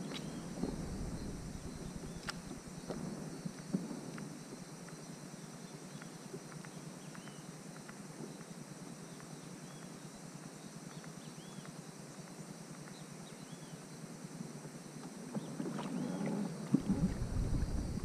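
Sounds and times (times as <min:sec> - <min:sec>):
low steady water rush: 0:00.0 - 0:18.0
light ticks: 0:05.9 - 0:10.0.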